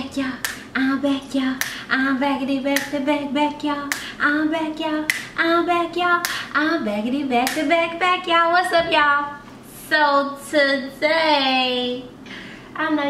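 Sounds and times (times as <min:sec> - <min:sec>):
woman singing: 0:00.0 - 0:12.0
finger snapping: 0:00.4 - 0:00.6, 0:01.6 - 0:01.8, 0:05.1 - 0:05.3.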